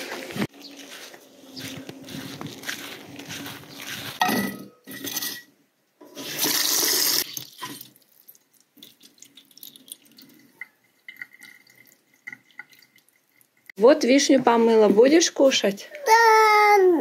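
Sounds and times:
water sloshing and dripping: 7.2s - 13.8s.

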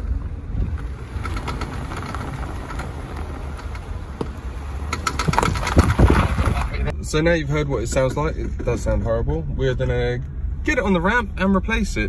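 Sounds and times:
low engine rumble: 0.0s - 12.0s
cv joint clicking: 1.2s - 6.0s.

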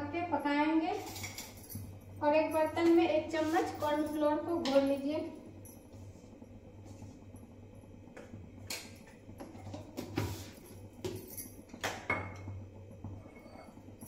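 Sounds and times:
low steady hum: 0.0s - 14.0s
spoon clinking on steel tumbler: 1.0s - 2.0s.

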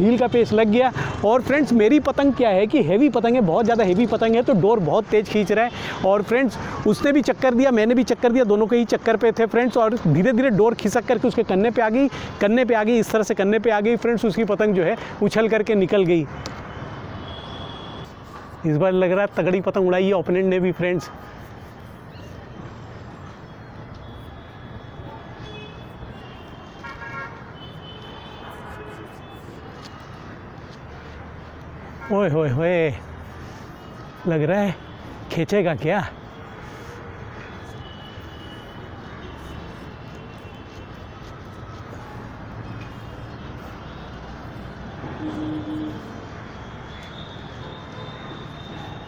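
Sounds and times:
distant traffic rumble: 0.0s - 49.0s
outdoor background noise: 0.0s - 49.0s
wind: 0.0s - 49.0s
distant vehicle horns tooting: 16.5s - 18.1s, 37.4s - 41.6s, 42.6s - 49.0s.

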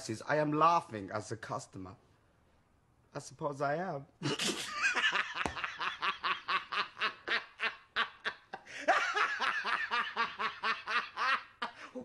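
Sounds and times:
man laughing: 4.2s - 12.0s.

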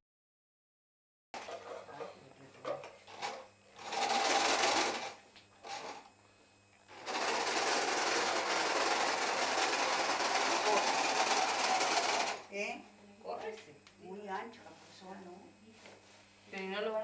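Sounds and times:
sewing machine stitching: 3.1s - 6.0s, 6.9s - 12.5s.

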